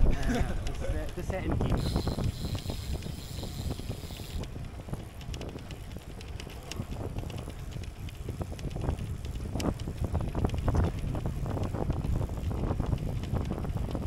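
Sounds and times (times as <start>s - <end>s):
bicycle clicking: 0.0s - 14.0s
wind rumbling on microphone: 0.0s - 14.0s.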